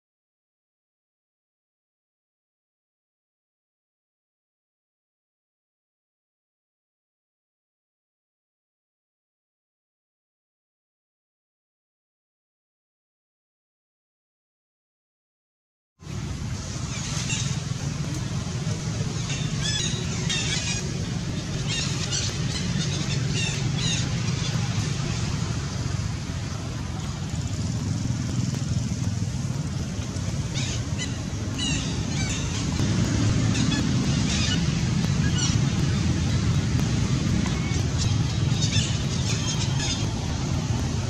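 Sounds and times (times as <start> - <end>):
steady low rumble: 16.0 - 41.0
birds chirping and warbling: 16.7 - 41.0.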